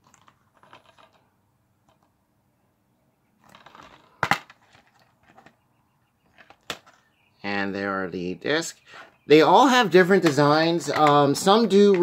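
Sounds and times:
plastic case rustling: 0:00.0 - 0:02.1, 0:03.4 - 0:05.6.

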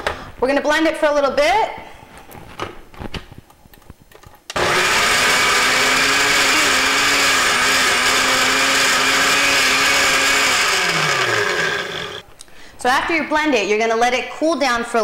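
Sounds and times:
blender running: 0:04.5 - 0:12.2.

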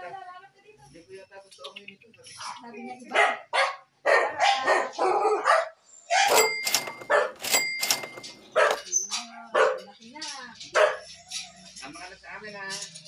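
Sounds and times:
dog barking: 0:03.0 - 0:06.5, 0:07.1 - 0:07.4, 0:08.6 - 0:08.9, 0:09.5 - 0:10.0, 0:10.7 - 0:11.2.

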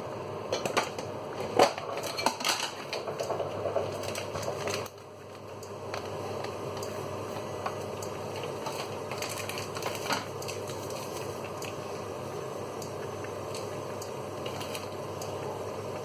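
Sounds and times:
water boiling hiss: 0:00.0 - 0:16.0
tomato frying in oil: 0:00.4 - 0:16.0
plastic packet crinkling: 0:08.7 - 0:11.3.

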